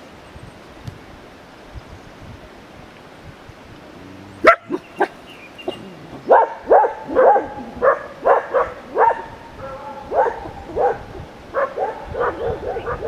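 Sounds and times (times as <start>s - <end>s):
dog yelping: 4.3s - 13.0s
dog barking: 4.4s - 13.0s.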